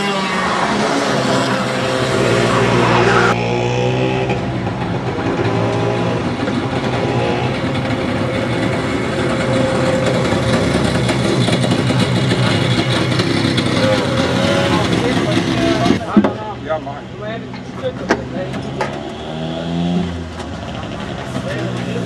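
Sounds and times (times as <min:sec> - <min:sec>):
kart engines droning: 0:00.0 - 0:22.0.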